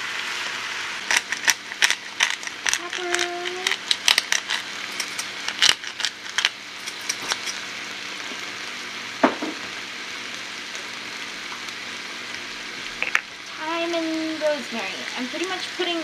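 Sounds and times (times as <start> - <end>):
potatoes sizzling in a pan: 0.0 - 16.0
sharp clicks and pops: 1.1 - 7.6, 13.0 - 13.3
knock: 9.2 - 9.7.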